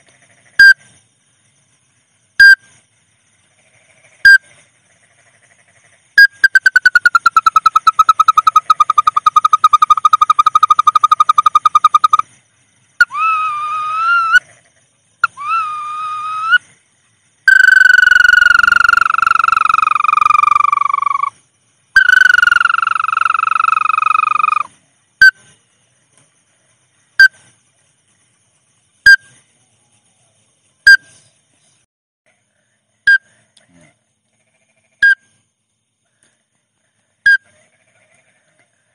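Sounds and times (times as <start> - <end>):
bird chirps: 6.2 - 12.3, 22.0 - 25.6
bird trill: 6.2 - 12.3, 17.5 - 21.3, 22.0 - 25.4.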